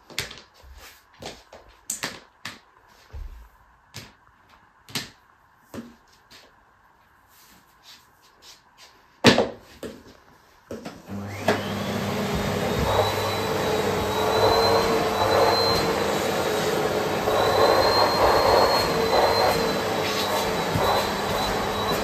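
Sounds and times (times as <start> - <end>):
vacuum cleaner motor whining: 11.0 - 22.0
vacuum suction noise: 11.1 - 22.0.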